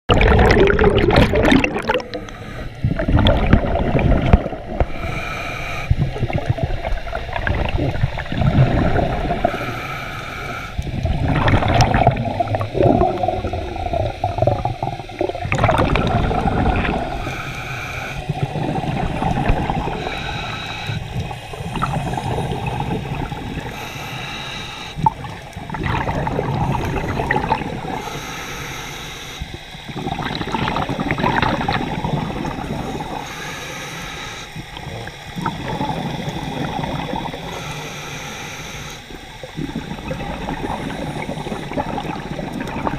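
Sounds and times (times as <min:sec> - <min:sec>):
exhaled bubbles gurgling: 0:00.1 - 0:42.9
regulator inhalations: 0:01.8 - 0:03.0, 0:04.5 - 0:06.2, 0:09.2 - 0:11.0, 0:16.8 - 0:25.3, 0:26.5 - 0:30.1, 0:32.4 - 0:42.4.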